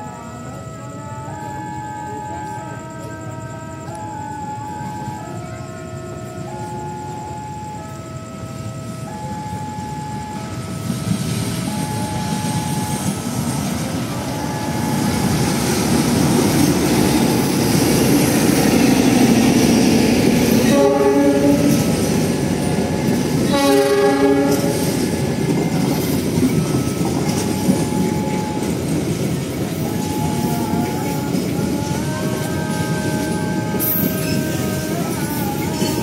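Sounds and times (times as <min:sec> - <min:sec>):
level crossing alarm tones: 0:00.0 - 0:36.0
passenger train running past: 0:00.0 - 0:36.0
train horn blasts: 0:16.6 - 0:25.2, 0:29.8 - 0:36.0.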